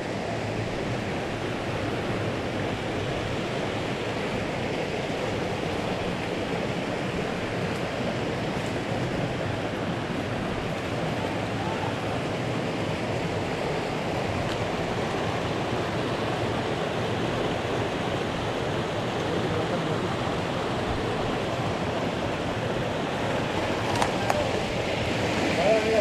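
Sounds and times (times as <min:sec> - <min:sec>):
stream rushing over rocks: 0:00.0 - 0:26.0.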